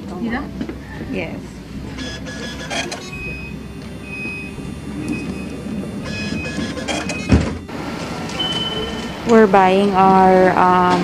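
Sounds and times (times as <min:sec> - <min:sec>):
tram rumbling: 0:00.0 - 0:11.0
short high electronic beeps: 0:08.4 - 0:09.3.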